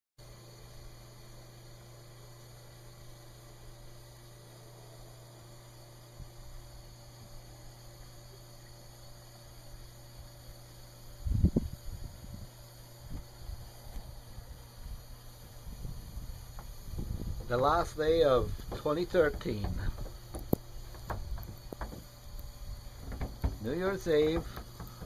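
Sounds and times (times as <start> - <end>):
steady low hum: 0.2 - 25.0
low rumbling knocks: 15.8 - 25.0.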